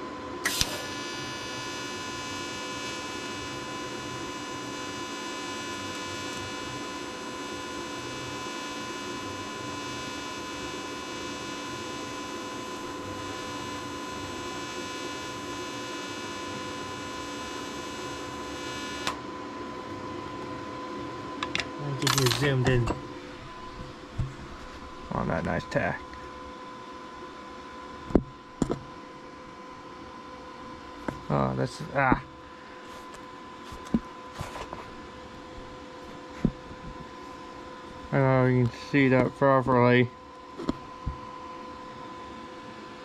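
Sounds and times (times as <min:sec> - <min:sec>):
welder cut-off click: 0:00.4 - 0:00.9
welding arc buzzing: 0:00.4 - 0:19.3, 0:21.4 - 0:26.4.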